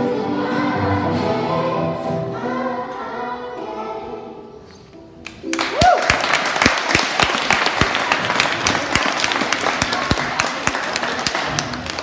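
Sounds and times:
children applauding: 5.5s - 12.0s.

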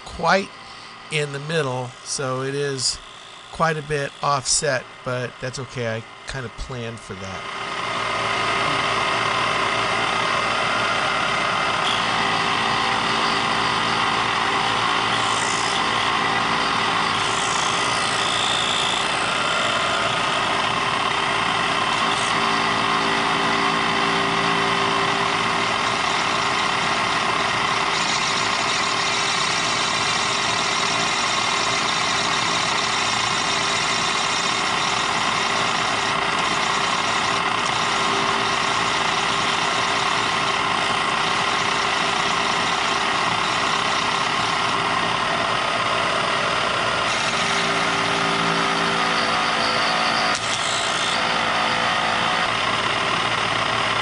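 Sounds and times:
milling machine cutting metal: 0.0s - 6.6s, 7.4s - 54.0s
cordless drill turning: 9.0s - 24.0s, 25.1s - 45.7s, 46.3s - 49.4s, 50.3s - 51.4s.

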